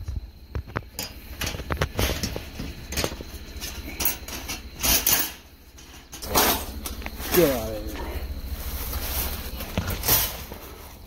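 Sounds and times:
wire-mesh trap rattling: 0:01.0 - 0:07.7.

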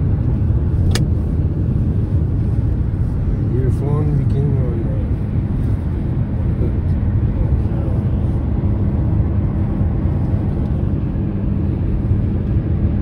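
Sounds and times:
car cabin road rumble: 0:00.0 - 0:13.0.

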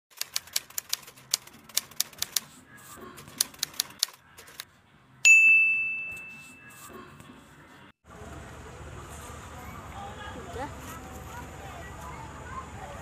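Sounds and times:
typewriter carriage bell ding: 0:05.3 - 0:06.8.

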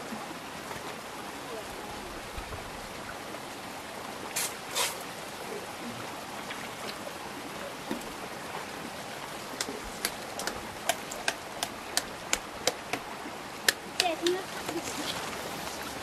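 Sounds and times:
stream running water: 0:00.0 - 0:16.0
wooden mallet tapping stakes: 0:09.6 - 0:14.8.

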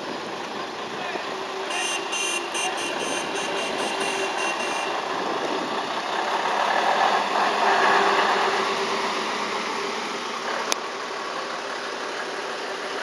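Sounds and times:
truck engine driving past: 0:00.0 - 0:13.0
rapid high electronic beeping: 0:01.7 - 0:04.9.

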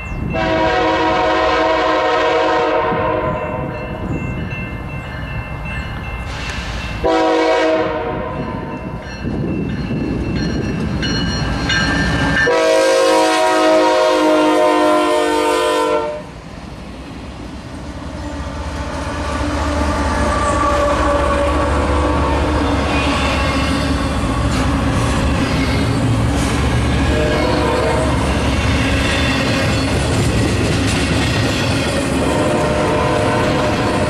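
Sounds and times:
train air horn blasts: 0:00.4 - 0:03.7, 0:07.0 - 0:08.6, 0:12.4 - 0:16.4, 0:18.8 - 0:23.7, 0:27.0 - 0:28.5, 0:32.2 - 0:34.0
locomotives rumbling past: 0:16.2 - 0:34.0.

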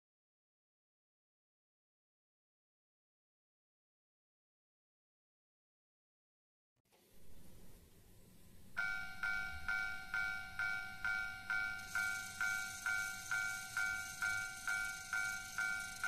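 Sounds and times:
faint hiss: 0:06.9 - 0:16.0
crossing warning bell dinging: 0:08.8 - 0:16.0.

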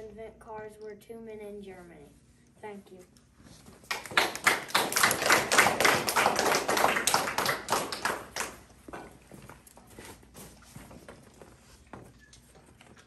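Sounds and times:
audience clapping: 0:03.8 - 0:08.9.

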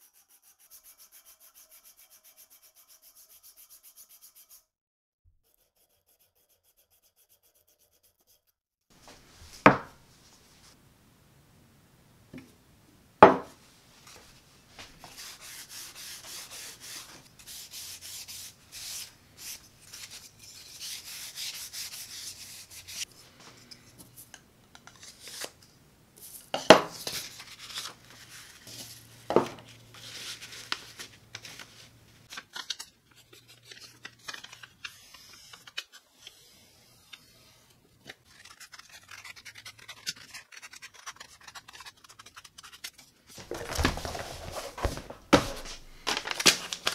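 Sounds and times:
paper rustling: 0:30.0 - 0:36.0, 0:38.2 - 0:46.9
scissors snipping paper: 0:38.2 - 0:43.9.

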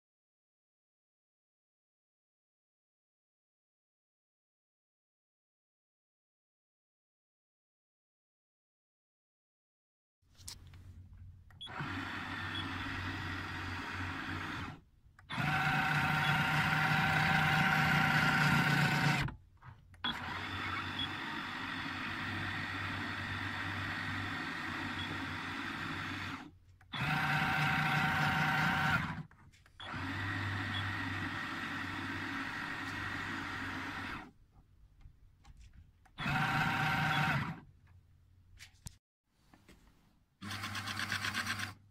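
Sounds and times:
electric motor and gearbox whining: 0:11.6 - 0:34.4, 0:36.1 - 0:37.7.

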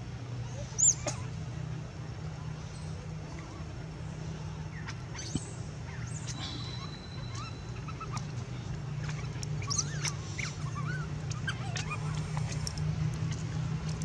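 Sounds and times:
steady low hum: 0:00.0 - 0:14.0
monkeys squeaking and chirping: 0:04.7 - 0:12.8.

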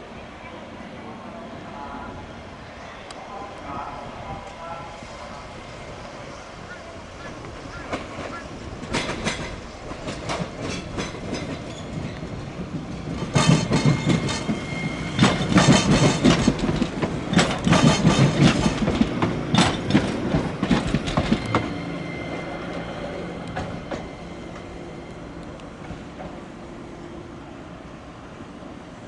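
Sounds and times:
streetcar hum with faint whine: 0:00.0 - 0:29.0
streetcar wheels clattering over joints: 0:07.2 - 0:21.8.

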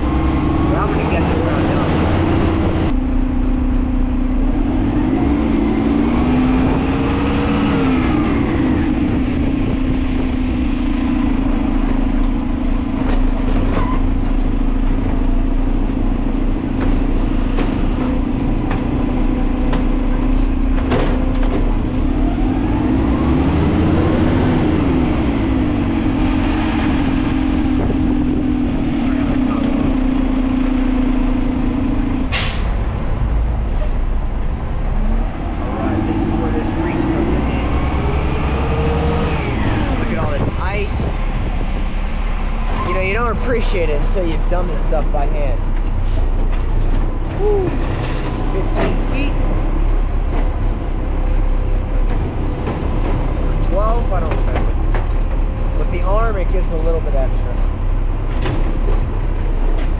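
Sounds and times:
garbage truck hydraulics and engine: 0:02.0 - 0:35.4, 0:45.6 - 0:53.6
air brake hiss: 0:32.3 - 0:32.8.

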